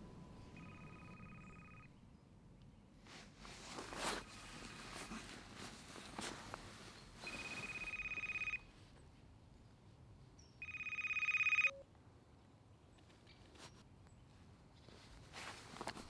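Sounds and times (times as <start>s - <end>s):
phone ringing: 0.0s - 1.9s, 7.2s - 8.7s, 10.6s - 11.8s.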